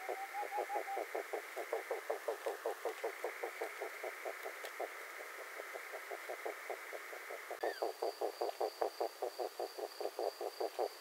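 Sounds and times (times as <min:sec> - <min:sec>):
rhythmic pulsing animal calls: 0:00.0 - 0:11.0.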